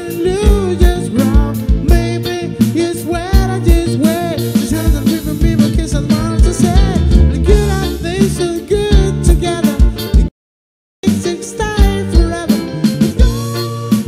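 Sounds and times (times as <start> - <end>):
man singing into microphone: 0.0 - 10.1, 11.0 - 14.0
drums steady beat: 0.0 - 10.3, 11.0 - 14.0
electric bass: 0.0 - 10.3, 11.0 - 14.0
electric guitar: 0.0 - 10.3, 11.0 - 14.0
keyboard: 0.0 - 10.3, 11.0 - 14.0.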